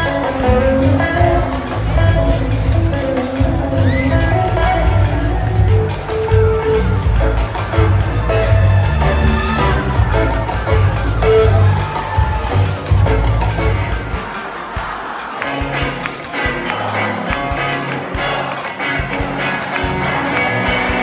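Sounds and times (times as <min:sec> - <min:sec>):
electric guitar: 0:00.0 - 0:14.4, 0:15.4 - 0:21.0
steady bass beat: 0:00.0 - 0:15.1.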